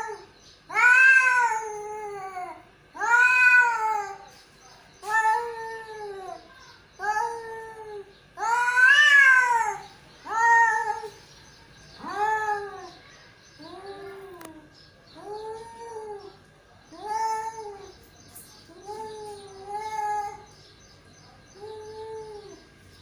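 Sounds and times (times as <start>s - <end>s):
tomcat yowling: 7.0s - 11.2s.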